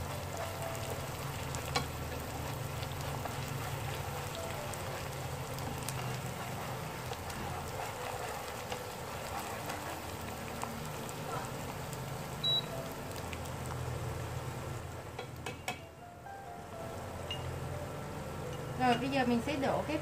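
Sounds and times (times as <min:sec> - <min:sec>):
paste sizzling in hot oil: 0:00.0 - 0:15.1.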